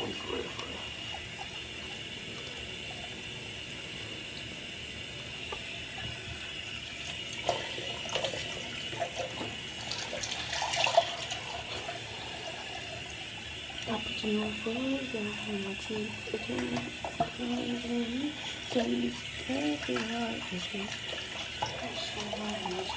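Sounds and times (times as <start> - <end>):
sink tap running: 0.0 - 22.9
splashing and small knocks: 7.4 - 12.0, 18.4 - 22.9.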